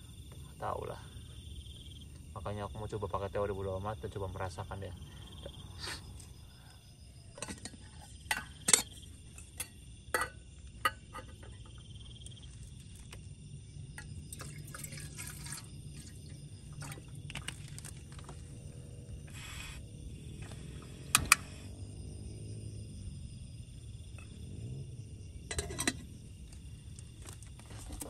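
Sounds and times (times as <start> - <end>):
water pouring into kettle: 14.3 - 17.9.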